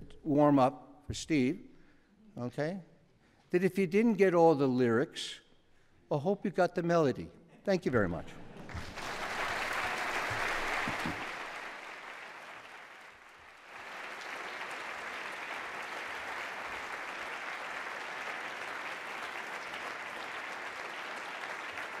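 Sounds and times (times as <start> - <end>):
audience applauding: 8.6 - 22.0.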